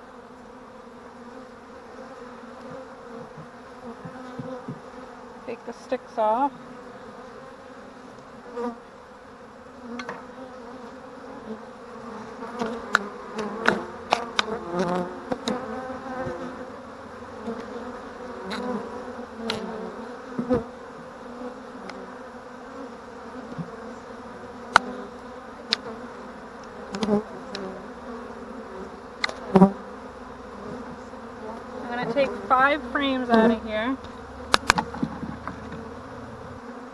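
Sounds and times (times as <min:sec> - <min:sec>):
bees buzzing: 0:00.0 - 0:36.9
clicks and knocks of wooden hive parts: 0:12.9 - 0:15.6, 0:26.6 - 0:27.7, 0:34.0 - 0:35.9.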